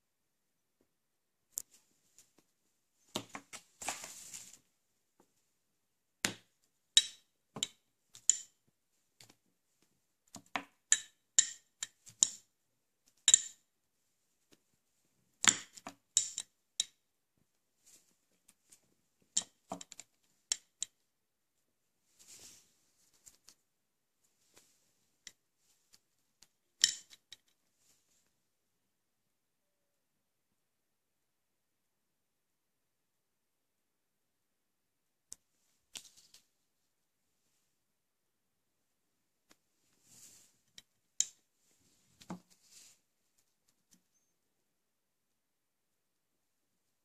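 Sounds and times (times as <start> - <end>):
short rustle: 3.7 - 4.6.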